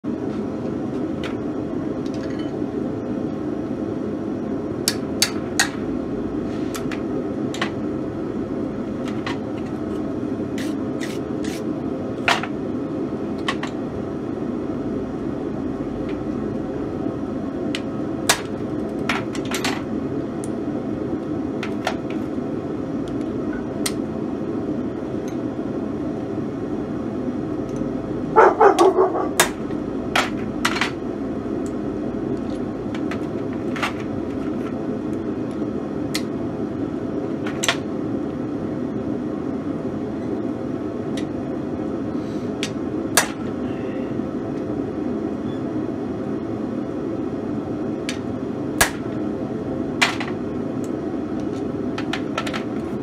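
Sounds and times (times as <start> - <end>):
forge roaring: 25.7 - 33.0.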